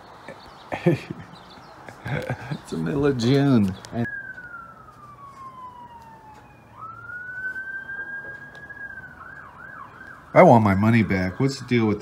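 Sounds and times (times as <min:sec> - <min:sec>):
emergency siren wailing: 0:03.2 - 0:12.0.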